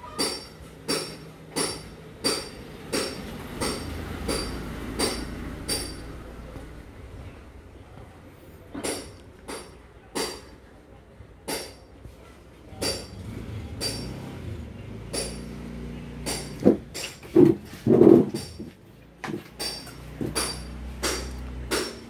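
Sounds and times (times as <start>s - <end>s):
sharp metallic clinks: 0.2s - 6.2s, 13.8s - 14.3s, 19.6s - 22.0s.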